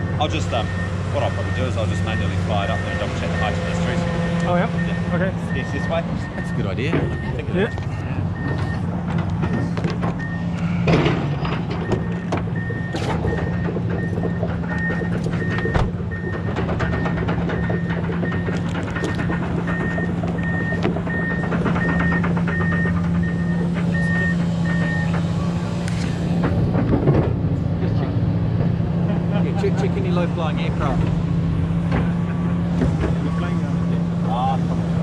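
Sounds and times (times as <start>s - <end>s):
reversing alarm beeping: 0.0s - 25.5s
low engine hum: 0.0s - 35.0s.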